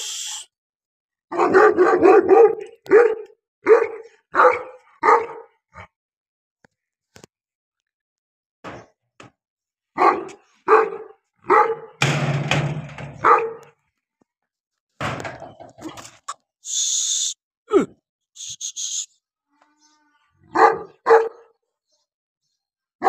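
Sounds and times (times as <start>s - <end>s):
short hissing noise: 0.0s - 0.5s, 16.7s - 17.4s, 18.4s - 19.1s
dog barking deeply: 1.3s - 6.0s, 10.0s - 12.0s, 13.2s - 13.8s, 20.4s - 21.6s.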